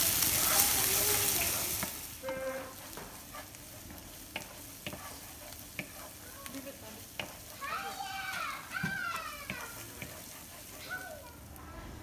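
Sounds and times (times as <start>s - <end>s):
food sizzling in oil: 0.0s - 12.0s
wooden spoon knocking pan: 3.9s - 6.1s, 7.0s - 7.5s, 8.3s - 10.4s.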